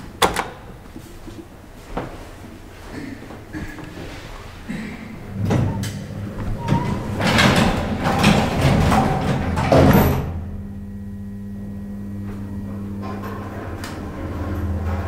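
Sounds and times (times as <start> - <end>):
low electric hum: 0.0 - 15.0
elevator doors rumbling shut: 4.6 - 10.5, 12.5 - 15.0.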